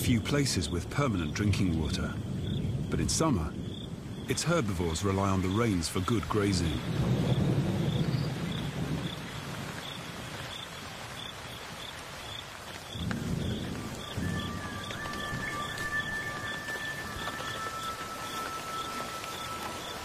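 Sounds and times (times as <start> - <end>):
low rolling thunder: 0.0 - 20.0
steady rain falling: 0.0 - 20.0.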